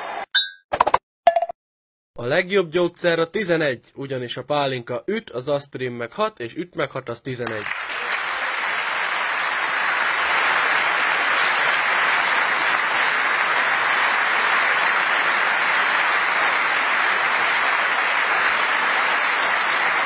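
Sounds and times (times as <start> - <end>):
large audience applauding: 7.4 - 20.0.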